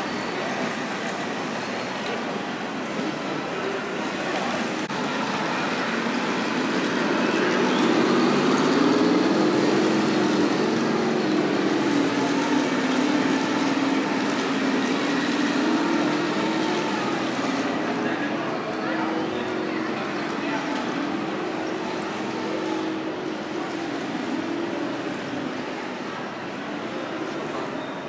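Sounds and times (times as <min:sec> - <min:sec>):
model tank motor and tracks: 0:00.0 - 0:28.0.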